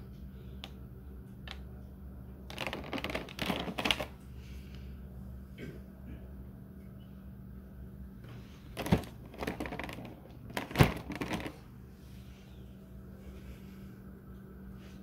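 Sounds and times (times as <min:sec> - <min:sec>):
plastic containers crackling and clicking: 0:01.4 - 0:01.7, 0:02.4 - 0:04.2, 0:08.7 - 0:11.7.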